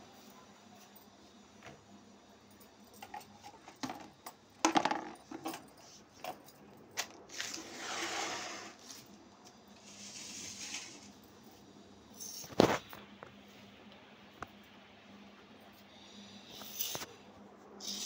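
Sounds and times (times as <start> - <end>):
plastic bottles clattering in bucket: 3.7 - 5.5.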